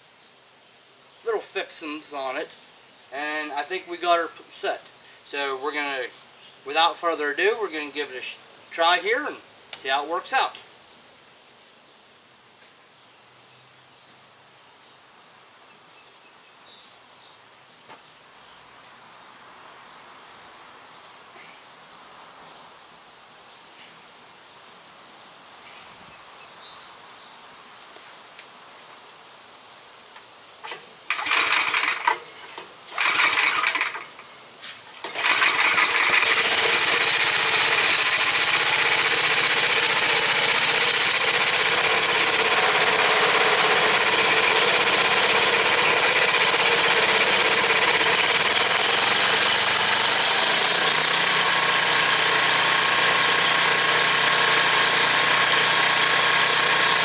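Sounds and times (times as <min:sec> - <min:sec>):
engine starting and running: 0:30.6 - 0:34.2, 0:35.0 - 0:57.0.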